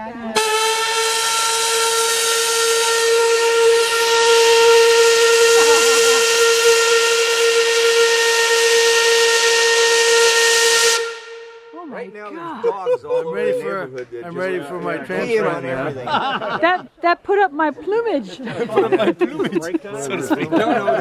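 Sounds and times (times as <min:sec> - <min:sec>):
steam whistle blowing: 0:00.3 - 0:11.8.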